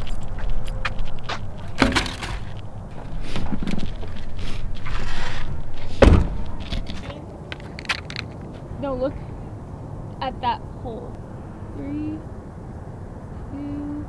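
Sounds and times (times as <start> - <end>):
heavy thump: 1.8 - 3.8, 5.8 - 7.1
knocks: 6.0 - 7.0.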